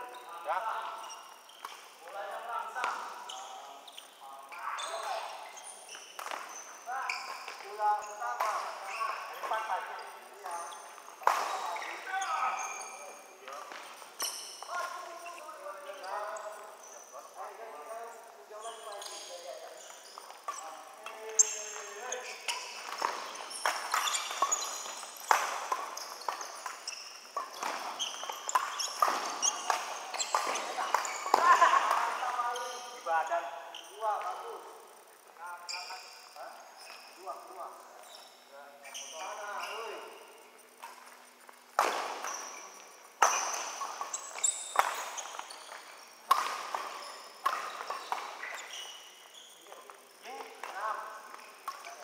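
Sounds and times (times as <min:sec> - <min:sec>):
shoes squeaking on court floor: 0:00.0 - 0:52.0
rackets hitting shuttlecock: 0:06.1 - 0:06.6, 0:10.4 - 0:12.0, 0:20.2 - 0:32.6, 0:41.7 - 0:49.2.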